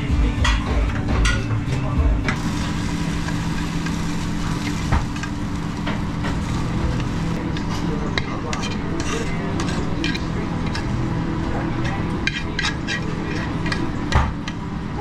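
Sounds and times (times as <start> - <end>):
kitchen hiss and hum: 0.0 - 15.0
metal tongs scraping a pan: 6.4 - 10.9, 12.2 - 13.8.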